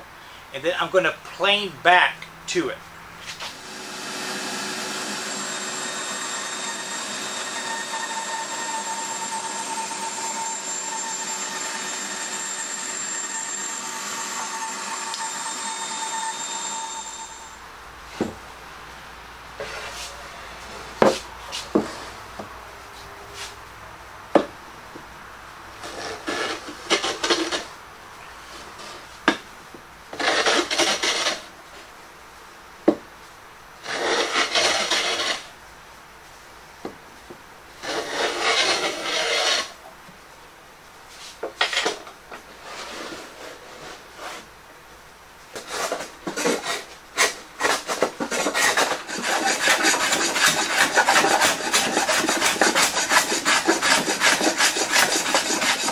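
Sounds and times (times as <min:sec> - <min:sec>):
hand plane shaving wood: 0:25.8 - 0:27.7, 0:30.2 - 0:31.5, 0:33.8 - 0:35.5, 0:37.8 - 0:39.8, 0:45.6 - 0:55.9.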